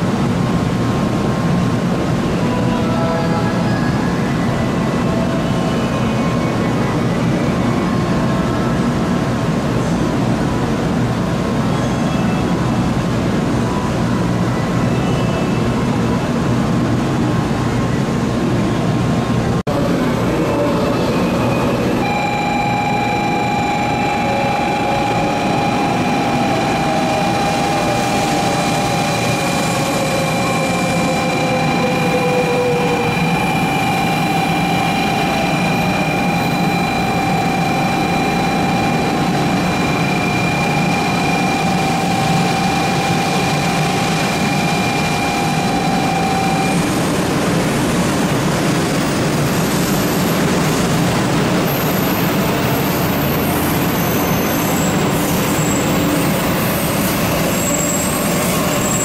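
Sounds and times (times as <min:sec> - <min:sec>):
electric train rumble: 0:00.0 - 0:59.0
high whining tones: 0:21.2 - 0:47.6.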